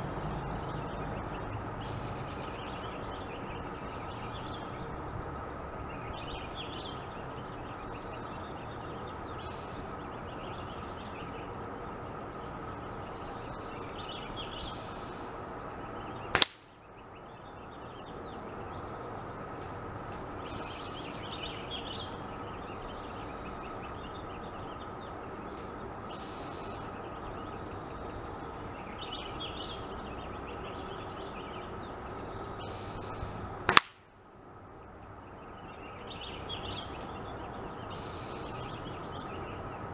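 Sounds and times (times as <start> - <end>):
air rifle cracks: 16.3 - 16.7, 33.7 - 34.1.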